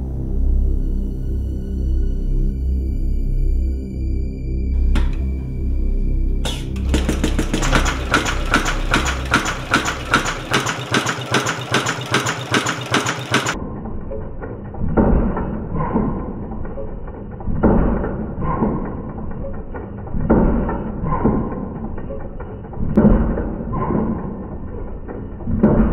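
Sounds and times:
sewing machine stitching leather: 0:06.5 - 0:13.6.

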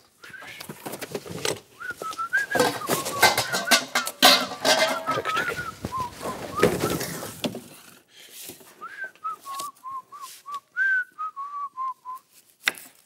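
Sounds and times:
person whistling tune: 0:00.2 - 0:00.7, 0:01.8 - 0:03.9, 0:05.1 - 0:07.1, 0:08.8 - 0:12.3
objects clattering: 0:00.4 - 0:08.7.

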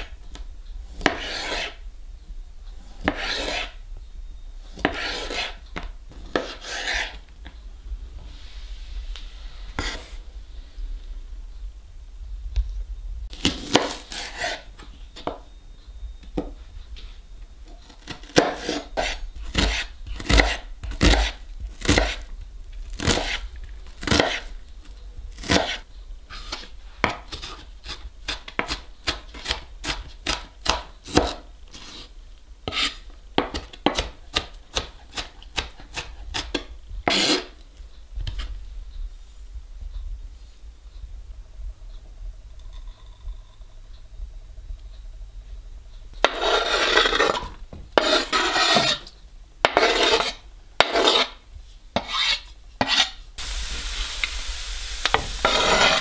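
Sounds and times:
knife chopping on cutting board: 0:01.0 - 0:01.7, 0:03.0 - 0:03.7, 0:04.8 - 0:05.5, 0:18.0 - 0:22.2, 0:24.0 - 0:24.4, 0:25.4 - 0:25.8, 0:28.6 - 0:32.0, 0:48.0 - 0:49.0.

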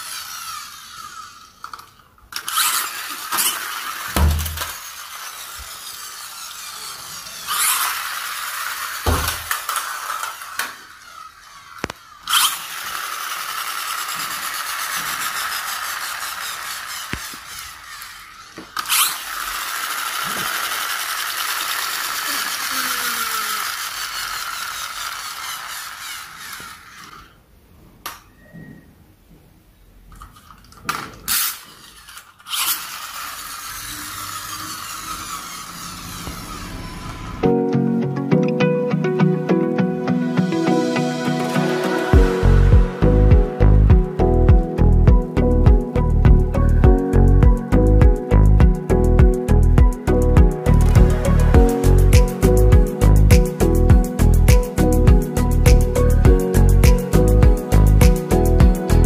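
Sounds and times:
toy car motor whirring: 0:00.0 - 0:27.4, 0:30.1 - 0:37.4, 0:49.5 - 0:59.0.

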